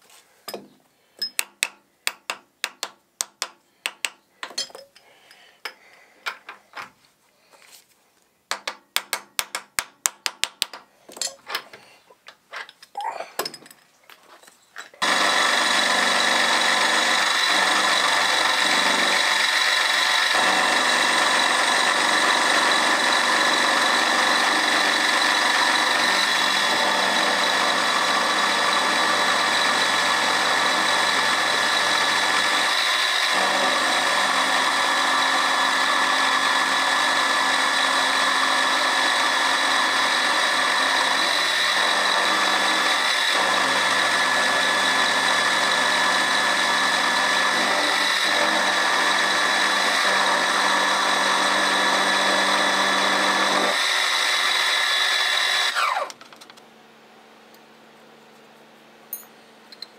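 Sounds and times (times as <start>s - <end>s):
milling machine cutting steel whine: 15.0s - 34.9s.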